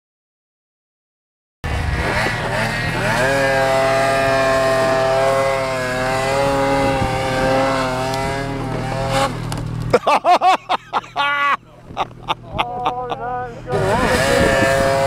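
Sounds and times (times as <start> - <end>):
snowmobile engine at high revs: 1.7 - 15.0.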